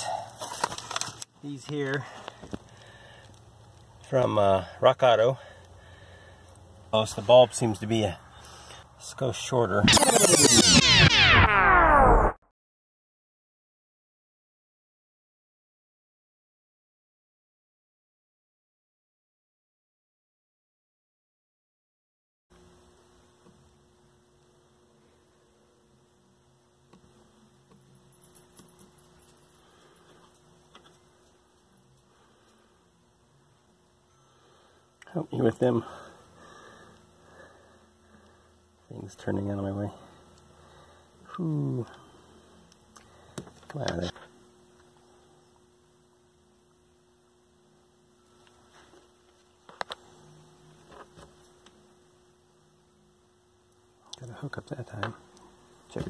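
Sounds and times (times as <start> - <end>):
faint electrical hum: 0.0 - 10.5, 22.5 - 56.0
small parts handling: 0.3 - 1.3.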